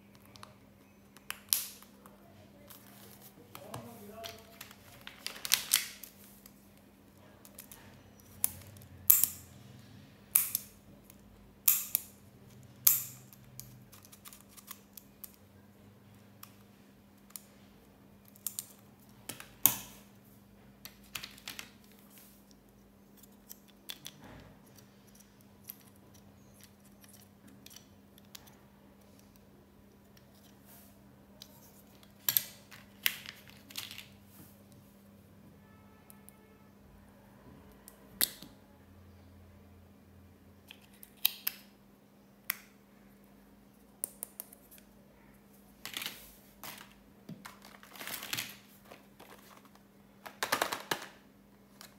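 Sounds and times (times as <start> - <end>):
small plastic pieces tapping: 3.5 - 6.2, 20.8 - 22.1, 45.8 - 51.2.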